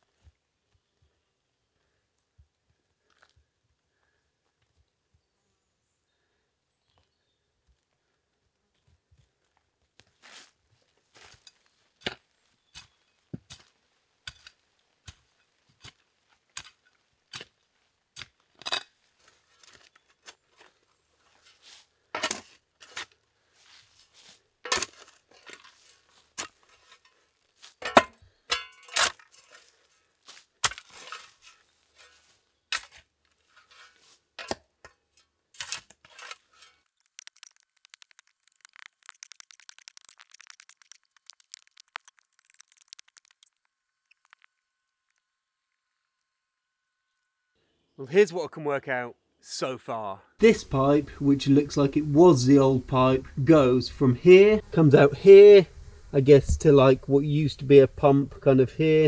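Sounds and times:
crackles of loose soil: 0.0s - 5.2s, 6.1s - 34.4s, 35.2s - 46.3s.

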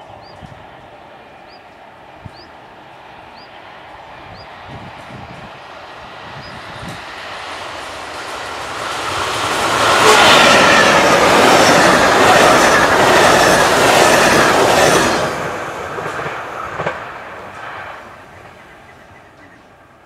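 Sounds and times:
train passing at speed: 0.0s - 20.0s.

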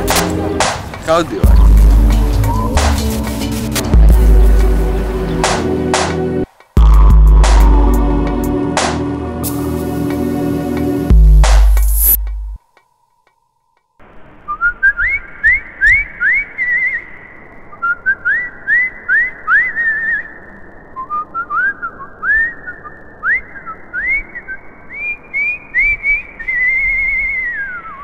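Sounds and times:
whistling with upward slides: 2.3s - 3.3s, 11.6s - 12.2s, 14.2s - 28.0s.

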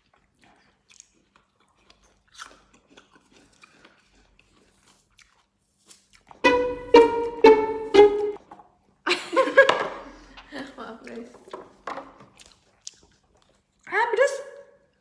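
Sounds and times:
apple crunching and chewing: 0.0s - 6.4s, 12.2s - 14.0s
plucked and bowed string music: 6.4s - 8.4s.

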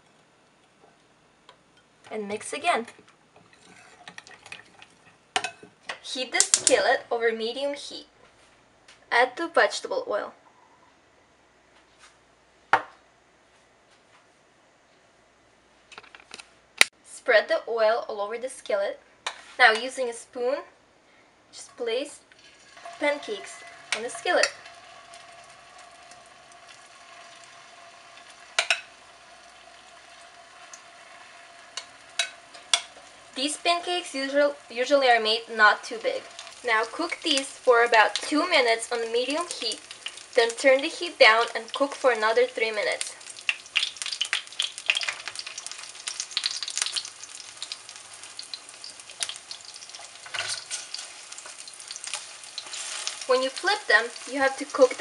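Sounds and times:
batter sizzling in oil: 21.6s - 55.0s
spatula flipping pancake: 22.3s - 38.4s, 39.0s - 40.5s, 41.3s - 55.0s.

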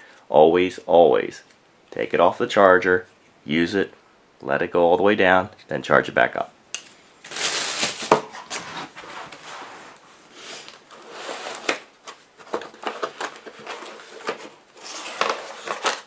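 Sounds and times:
cardboard and foam rustling: 7.3s - 10.0s, 10.6s - 16.0s.

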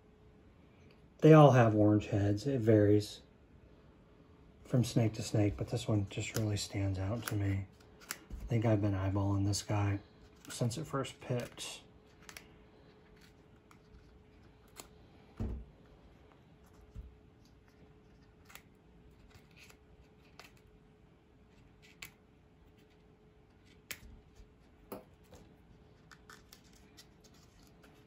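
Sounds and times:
loud thump: 15.4s - 15.7s.

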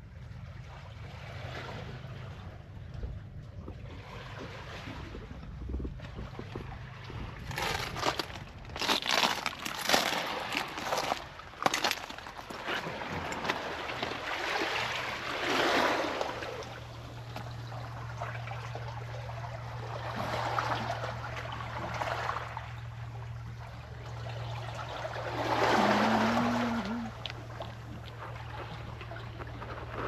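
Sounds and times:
steady low hum: 0.0s - 30.0s
waves washing over pebbles: 7.2s - 18.6s, 24.9s - 30.0s.

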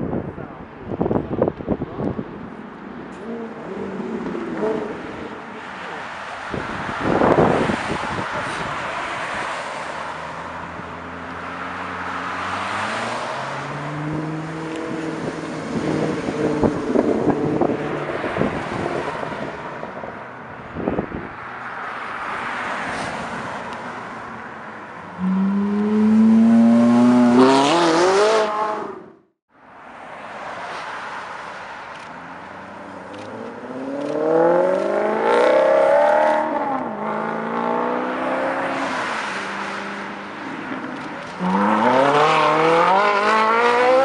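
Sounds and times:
traffic passing: 0.0s - 44.0s
sports car engines accelerating: 1.7s - 21.0s, 24.9s - 29.2s, 32.5s - 44.0s
car engine revving hard: 25.2s - 29.0s, 41.4s - 44.0s.

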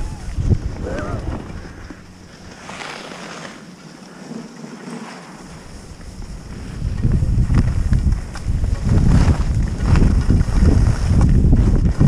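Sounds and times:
wind on microphone: 0.0s - 2.8s, 5.6s - 12.0s
skis scraping over snow: 0.0s - 12.0s.

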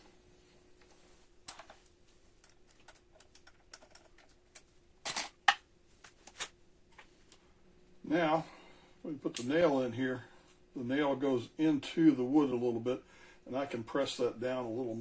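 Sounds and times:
small parts clicking and tapping: 1.4s - 5.6s.

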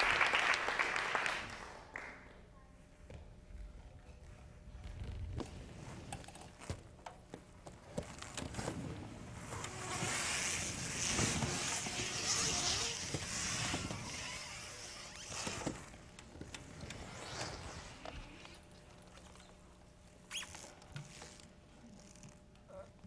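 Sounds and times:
wheelchair wheels rolling: 4.8s - 19.6s.

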